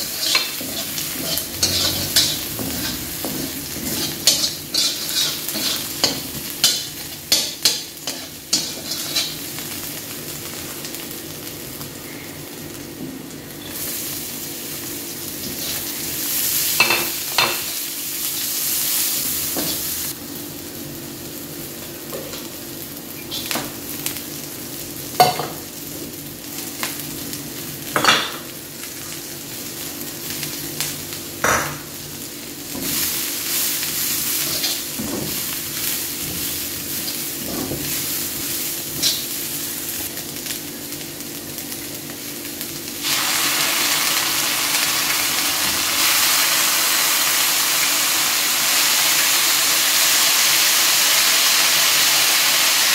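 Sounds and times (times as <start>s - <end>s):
metal spatula scraping a pan: 0.0s - 9.4s
vegetables sizzling in a wok: 0.0s - 52.9s.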